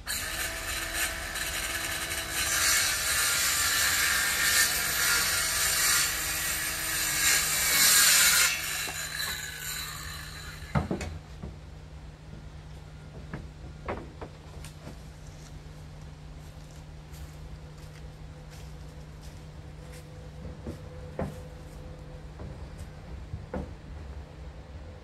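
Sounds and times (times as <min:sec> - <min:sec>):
circular saw cutting wood: 0:00.0 - 0:10.8.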